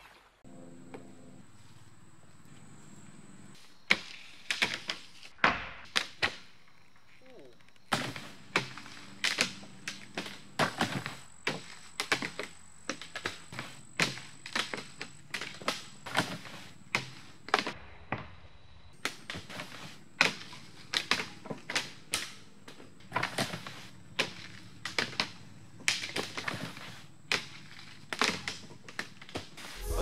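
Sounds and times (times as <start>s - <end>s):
ski gear clacking on wood: 25.9s - 29.7s.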